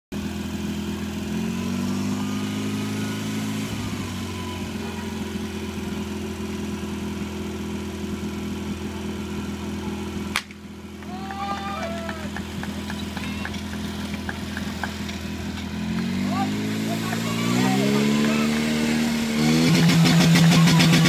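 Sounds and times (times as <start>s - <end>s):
pump engine idling: 3.8s - 15.7s.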